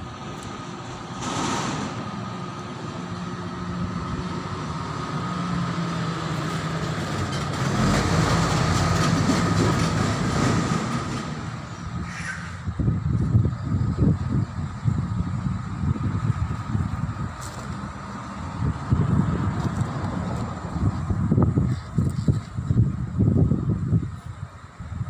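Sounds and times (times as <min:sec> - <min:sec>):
vehicle passing with high tone: 0:01.2 - 0:13.0.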